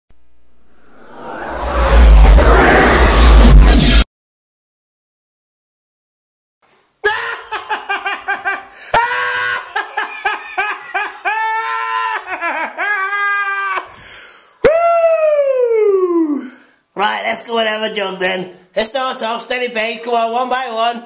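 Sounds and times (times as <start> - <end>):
high-pitched laughing and shrieking: 7.0 - 13.9
long falling cry: 7.0 - 14.0, 14.6 - 16.5.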